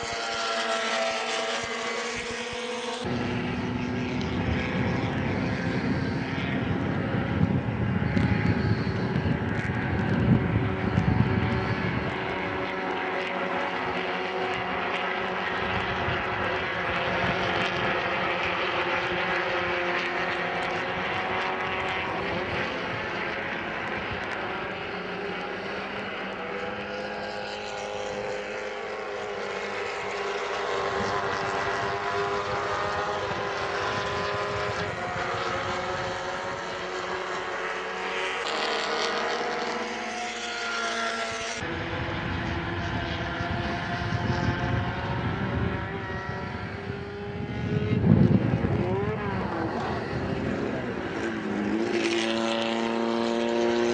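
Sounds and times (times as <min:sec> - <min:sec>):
race car engines at high revs: 0:00.0 - 0:53.9.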